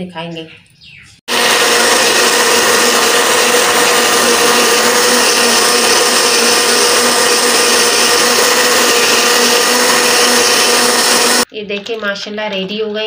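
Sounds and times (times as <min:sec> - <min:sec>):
electric blender running: 0:01.3 - 0:11.5.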